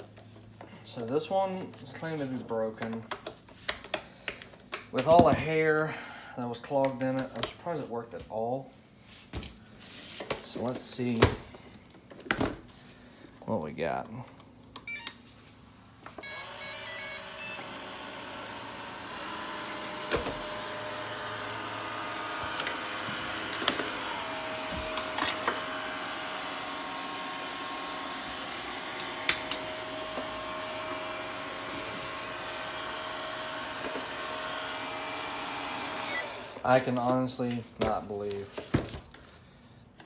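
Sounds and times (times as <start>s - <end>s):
robot vacuum short beeps: 16.2s - 17.8s
robot vacuum motors running: 16.2s - 36.8s.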